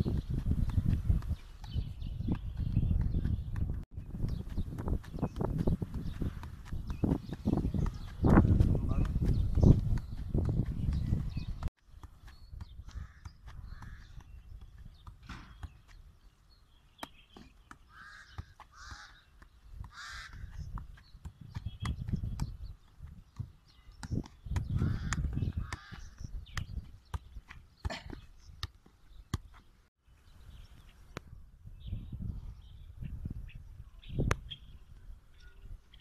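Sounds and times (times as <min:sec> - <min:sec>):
ball tapped off foot: 0:00.0 - 0:16.0, 0:19.4 - 0:29.7.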